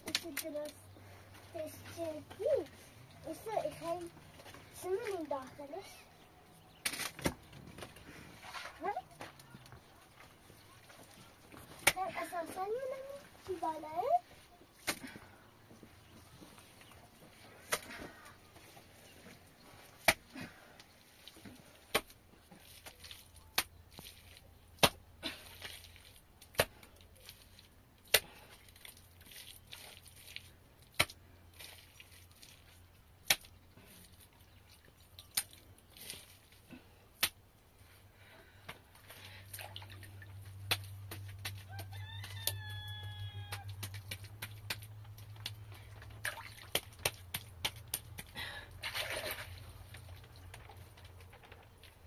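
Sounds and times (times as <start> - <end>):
rooster crowing: 41.7 - 43.7.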